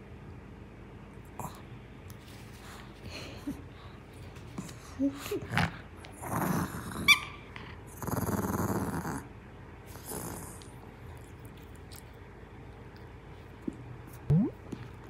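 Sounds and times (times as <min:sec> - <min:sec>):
puppy growling: 0:05.2 - 0:09.3, 0:09.9 - 0:12.2.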